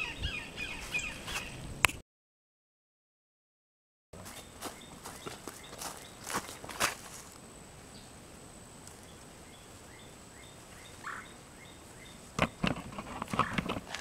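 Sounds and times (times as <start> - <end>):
crunching in dry leaf litter: 4.2 - 7.4, 13.4 - 14.0
low outdoor background: 4.2 - 14.0
faint bird chirps: 9.0 - 12.6.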